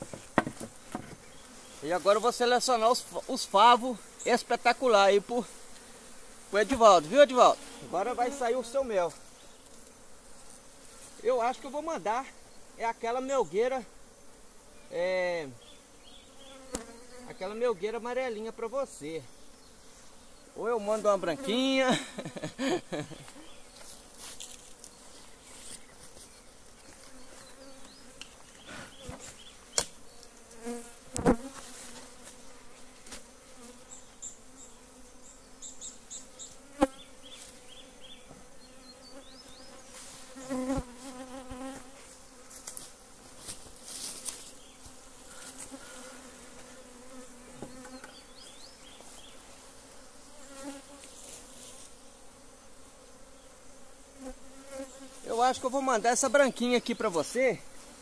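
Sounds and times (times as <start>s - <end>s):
wooden hive boxes knocking: 0.0s - 1.3s
bees buzzing: 0.0s - 58.0s.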